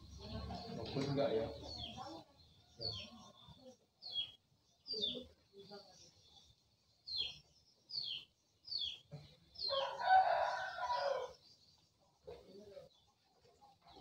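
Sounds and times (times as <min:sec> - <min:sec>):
small bird chirping: 0:00.0 - 0:14.0
rooster crowing: 0:09.7 - 0:11.4.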